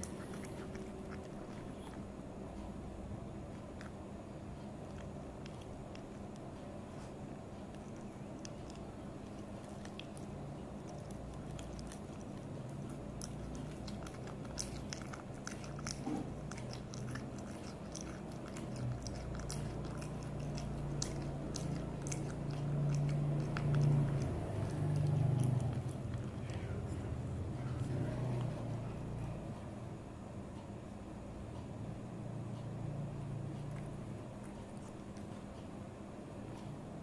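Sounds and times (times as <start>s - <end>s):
cat chewing wet mouth clicks: 0.0s - 2.0s, 4.8s - 26.8s, 33.6s - 35.5s
low steady hum: 0.0s - 37.0s.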